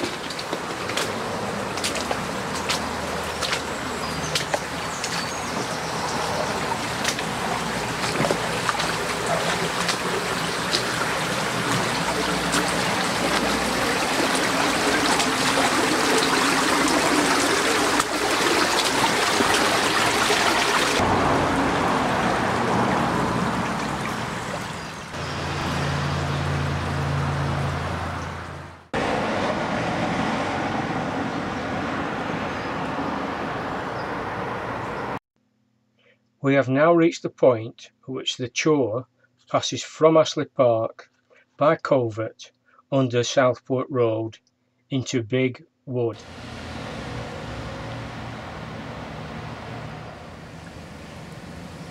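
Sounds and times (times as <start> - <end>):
stream running over stones: 0.0 - 27.0.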